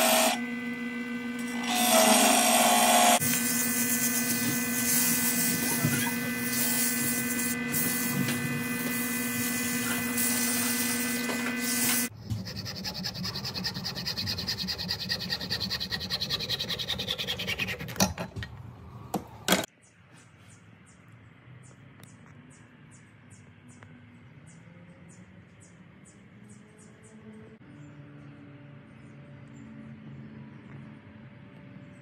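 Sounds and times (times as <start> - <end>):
hand saw cutting wood: 0.0 - 0.4, 1.4 - 9.0, 9.7 - 18.3
sandpaper rubbing spinning wood: 0.0 - 0.4, 1.6 - 18.0
lathe motor hum: 0.0 - 17.8.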